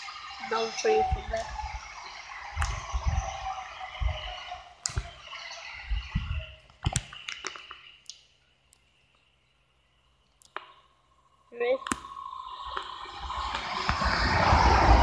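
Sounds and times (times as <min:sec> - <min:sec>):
wind rumbling on microphone: 0:00.0 - 0:07.4, 0:12.1 - 0:15.0.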